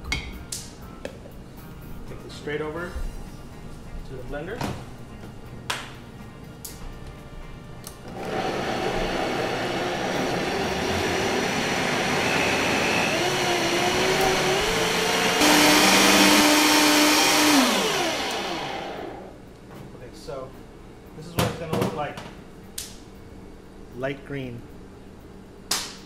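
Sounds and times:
blender motor running: 8.1 - 19.4.

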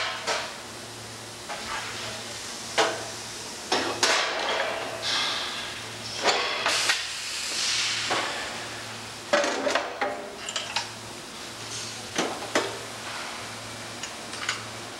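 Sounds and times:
short bursts of hissing: 6.7 - 8.1.

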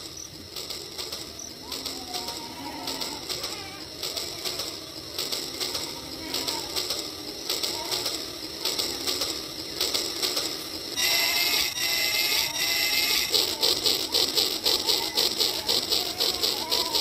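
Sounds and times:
steady high tones: 0.0 - 17.0
toy train motor clicking: 0.0 - 17.0.

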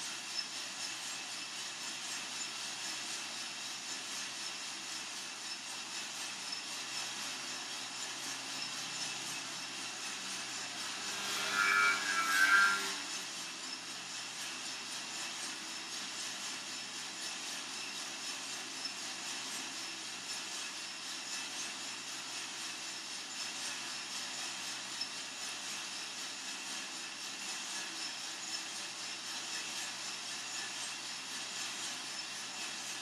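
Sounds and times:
coffee roaster drum and fan whirring: 0.0 - 33.0.

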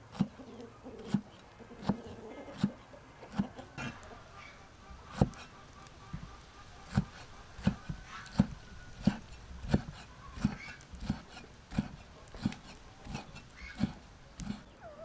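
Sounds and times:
cleaver chopping on wooden board: 0.1 - 0.4, 1.0 - 4.0, 5.1 - 5.5, 6.8 - 14.6.

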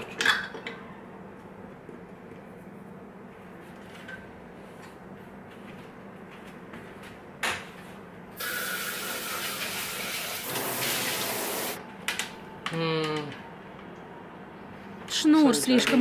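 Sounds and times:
tap running with water splashing: 8.4 - 11.8.

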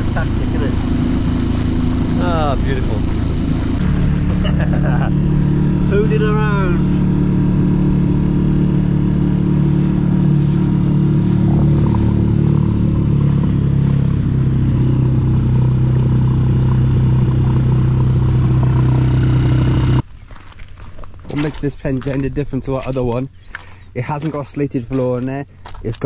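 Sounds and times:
outboard motor running: 0.0 - 20.1
wind: 0.0 - 26.0.

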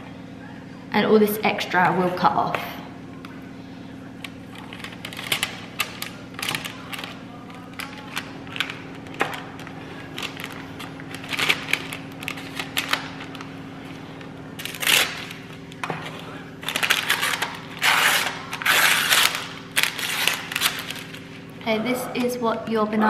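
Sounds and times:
baking paper crinkling: 4.2 - 21.3.

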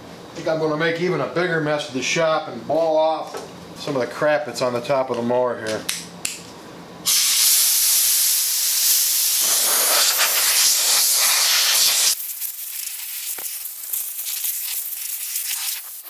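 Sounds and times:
air blow gun hissing: 7.0 - 16.0
faint hiss: 7.1 - 16.0.

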